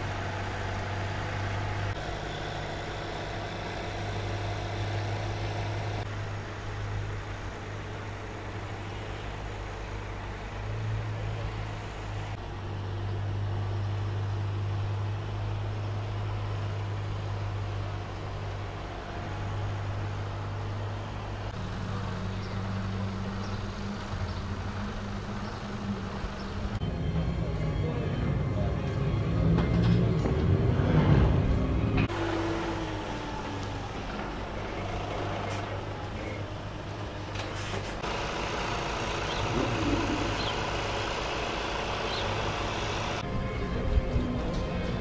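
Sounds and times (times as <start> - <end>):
car engine idling: 0.0 - 26.9, 38.0 - 43.2.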